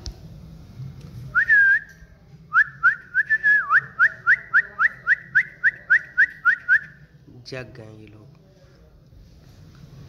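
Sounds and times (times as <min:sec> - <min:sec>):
person whistling: 0:01.4 - 0:01.9, 0:02.6 - 0:07.0.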